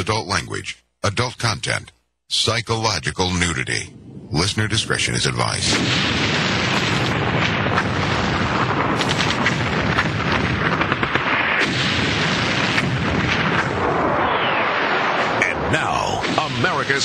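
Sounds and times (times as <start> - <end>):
explosions and gunfire rumble: 5.4 - 17.0
sharp cracks: 5.6 - 15.5.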